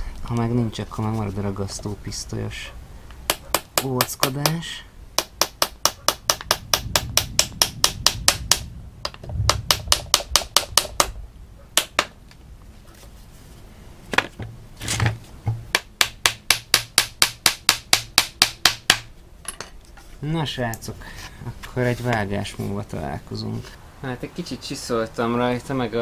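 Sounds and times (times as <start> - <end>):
heavier hammer blows: 5.2 - 11.2
small hammer tapping nails: 5.2 - 11.2.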